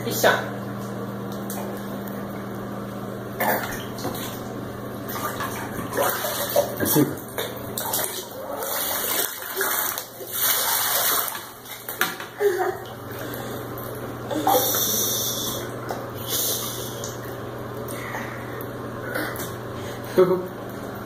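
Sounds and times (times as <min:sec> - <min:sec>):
bath water splashing: 0:03.6 - 0:20.1
water pouring over head: 0:07.9 - 0:11.5.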